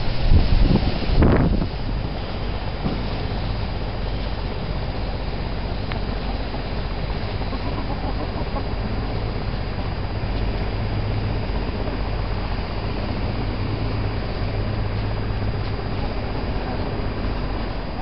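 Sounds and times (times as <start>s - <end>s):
low background rumble: 0.0s - 18.0s
hens clucking: 7.1s - 9.2s.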